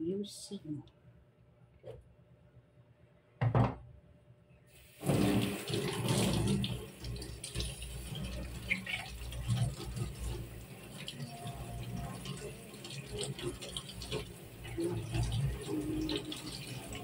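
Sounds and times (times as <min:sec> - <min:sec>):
water splashing into steel sink: 0:04.9 - 0:17.0.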